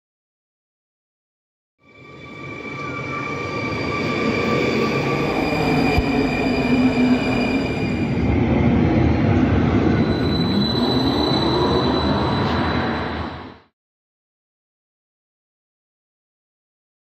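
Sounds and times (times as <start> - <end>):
electric rail vehicle rumble: 1.9 - 13.7.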